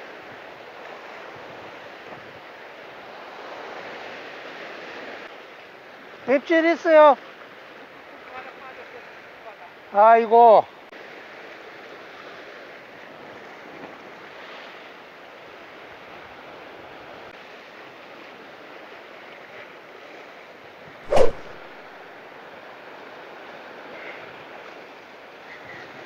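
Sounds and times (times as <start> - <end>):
surf over rocky shore: 0.0 - 26.0
short sharp loud sound: 21.1 - 21.7.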